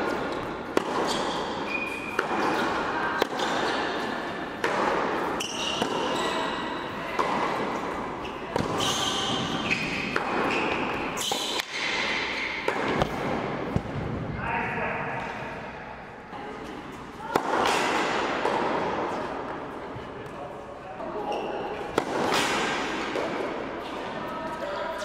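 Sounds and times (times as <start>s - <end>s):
tennis racket strikes: 0.0s - 4.0s, 4.6s - 6.4s, 8.5s - 13.8s, 21.9s - 23.6s
tennis ball bounces: 0.0s - 6.4s, 7.2s - 7.8s
shoes squeaking on court: 0.2s - 2.8s, 5.2s - 11.6s.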